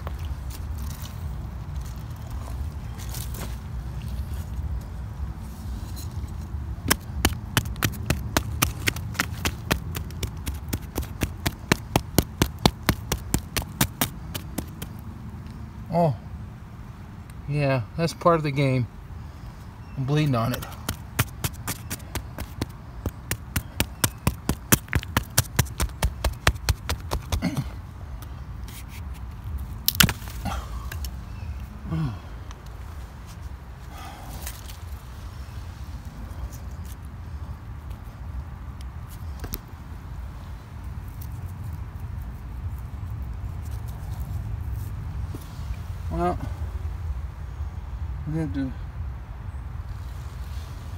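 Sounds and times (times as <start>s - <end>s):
clicks and scrapes of gravel: 0.0s - 4.7s, 20.1s - 27.6s
wooden stick knocking on rock: 6.9s - 15.0s, 20.3s - 27.5s.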